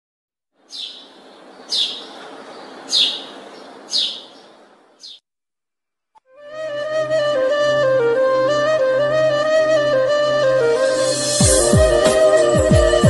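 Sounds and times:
sparrow chirping: 0.6s - 5.2s
flute music: 6.2s - 13.0s.

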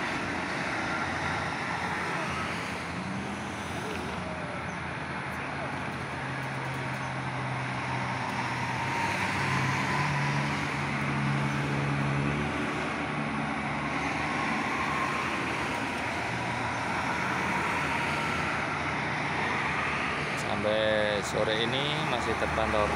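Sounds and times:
traffic passing: 0.0s - 22.9s.

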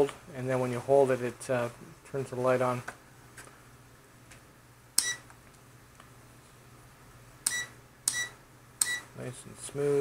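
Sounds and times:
multimeter beeps: 5.0s - 5.3s, 7.4s - 9.1s.

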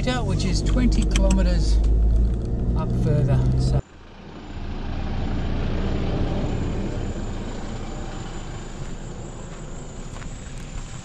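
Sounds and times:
wind: 0.0s - 11.0s
tyres on gravel: 8.8s - 11.0s.

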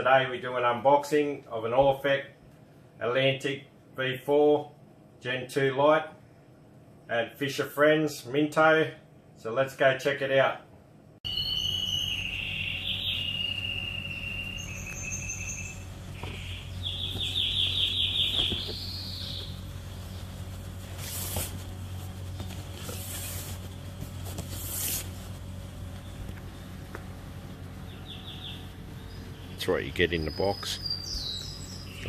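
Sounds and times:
steady low hum: 0.0s - 32.0s
insects chirping and trilling: 11.3s - 19.6s.

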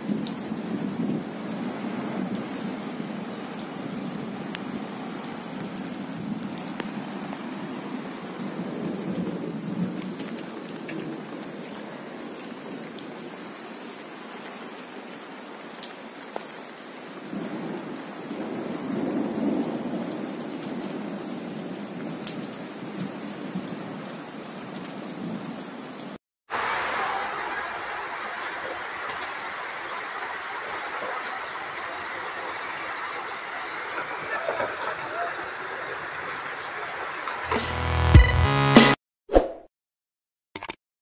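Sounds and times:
heavy rain pouring: 0.0s - 38.0s
raindrop ticks: 3.6s - 7.5s, 22.2s - 23.8s.

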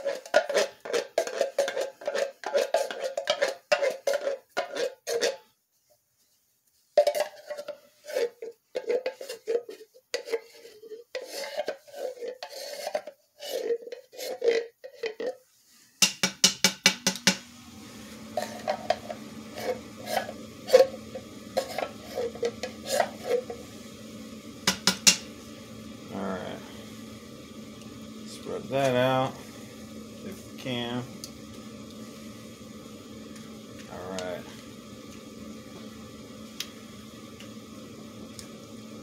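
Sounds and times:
wooden spoon scraping and tapping: 0.0s - 5.4s, 7.0s - 15.4s, 18.3s - 23.6s, 24.7s - 25.3s.

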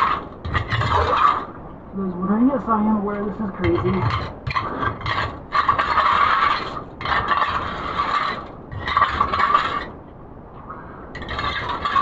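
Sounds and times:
digging tool scraping wet gravel: 0.0s - 1.5s, 3.8s - 9.9s, 11.2s - 12.0s.

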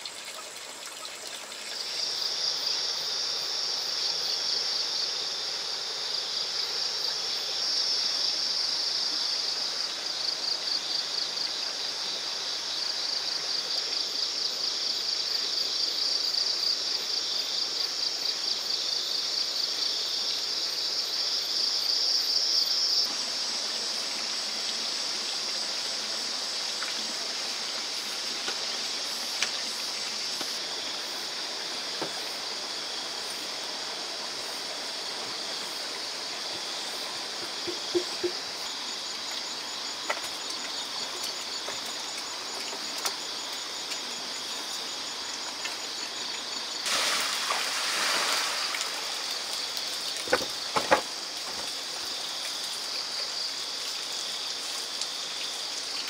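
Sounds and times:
flowing water rushing: 0.0s - 12.4s, 22.0s - 56.0s
insects trilling: 0.0s - 56.0s.

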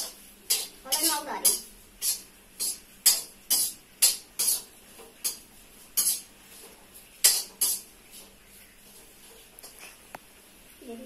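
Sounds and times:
metal ladle scraping wok: 0.0s - 6.3s, 7.2s - 7.9s.

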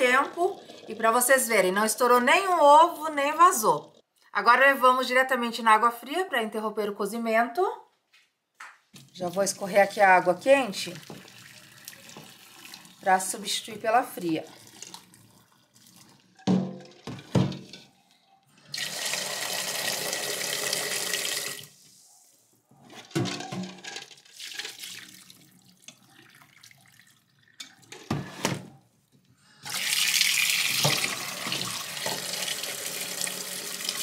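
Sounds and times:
water pouring into a sink: 10.7s - 16.4s, 18.7s - 21.7s, 24.2s - 28.0s, 29.6s - 34.0s
metal pot knocking on sink: 16.4s - 17.6s
tap running into a pot: 30.7s - 32.3s.

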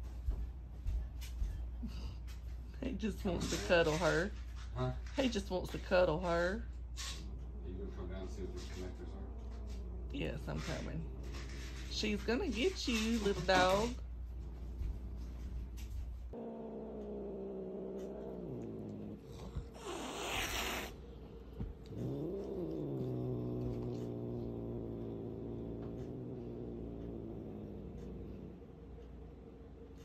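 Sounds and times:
cat growling: 6.9s - 12.0s, 13.6s - 29.0s
cat hissing: 16.3s - 21.1s, 21.8s - 28.6s.

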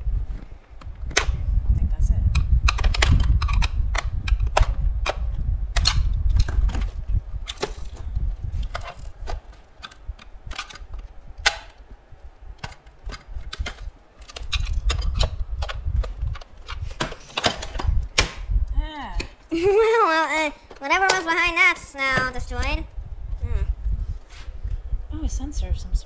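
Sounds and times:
low rumble of handling case: 0.0s - 19.1s
plastic clicking and cracking: 2.3s - 7.8s, 12.6s - 18.4s.

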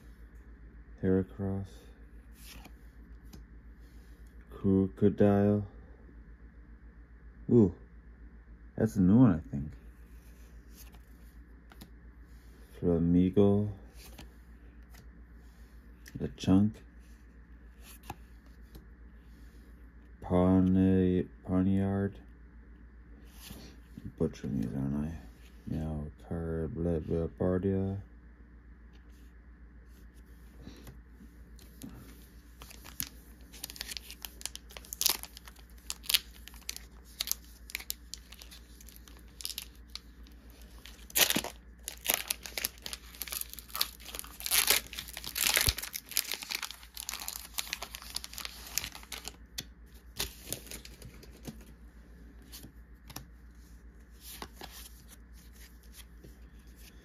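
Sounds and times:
foil wrapper crinkling and tearing: 32.6s - 49.4s.

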